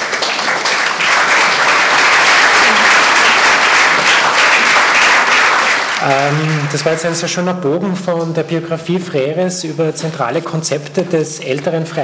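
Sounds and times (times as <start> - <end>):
audience applauding: 0.0 - 7.3.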